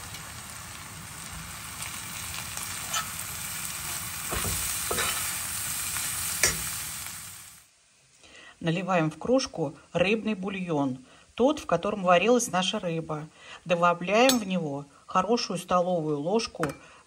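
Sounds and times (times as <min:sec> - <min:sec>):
vegetables sizzling in oil: 0:00.0 - 0:08.0
metal spoon scraping and clinking pan: 0:02.8 - 0:03.2, 0:04.3 - 0:05.3, 0:06.4 - 0:06.7.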